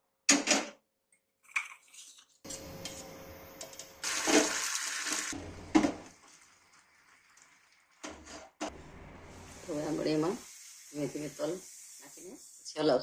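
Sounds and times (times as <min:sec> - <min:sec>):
syrup bubbling and sizzling in a pan: 0:04.0 - 0:12.7.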